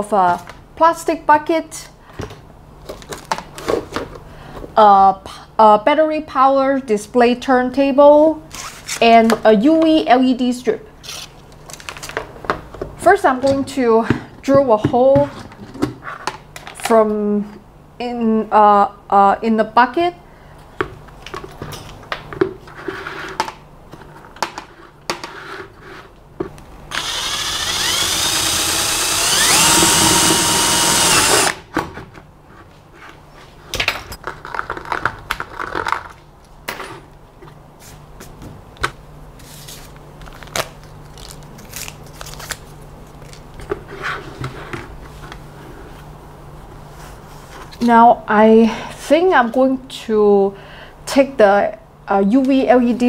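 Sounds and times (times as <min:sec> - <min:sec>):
electric drill boring plastic: 0:26.9 - 0:31.6.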